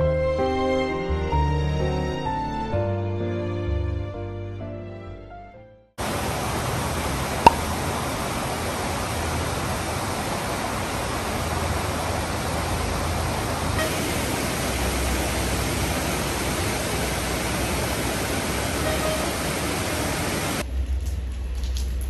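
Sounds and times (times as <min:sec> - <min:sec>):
heavy rain pouring: 0:06.0 - 0:22.0.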